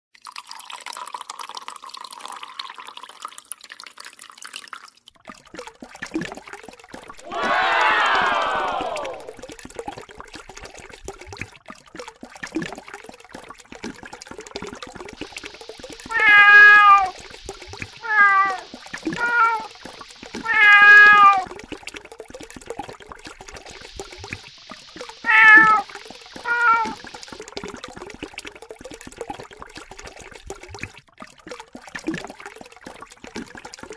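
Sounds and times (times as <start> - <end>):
tap water splashing into sink: 5.2 - 33.9
cat meowing: 16.1 - 17.1, 18.0 - 19.7, 20.4 - 21.4, 25.2 - 25.8, 26.4 - 27.0.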